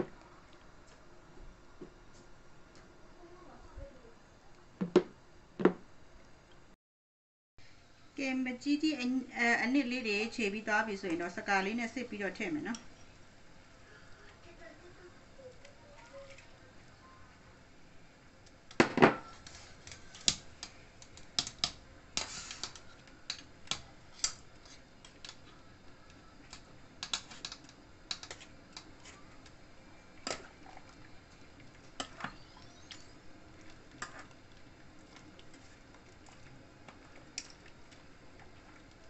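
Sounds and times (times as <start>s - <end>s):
metal spoon scraping a strainer: 22.2s - 22.8s.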